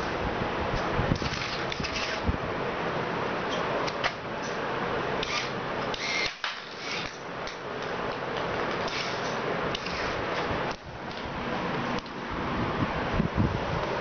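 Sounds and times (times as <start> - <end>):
mechanical whir: 5.2 - 7.2, 8.6 - 10.8.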